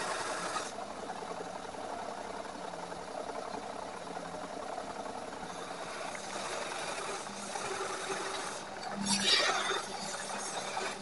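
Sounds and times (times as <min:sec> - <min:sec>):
power tool motor running: 0:00.0 - 0:00.7.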